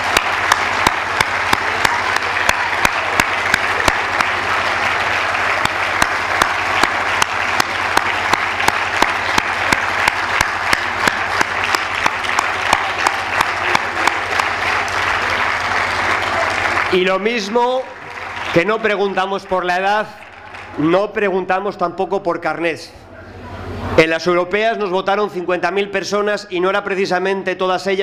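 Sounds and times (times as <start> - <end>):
crowd applauding rhythmically: 0.0 - 21.7.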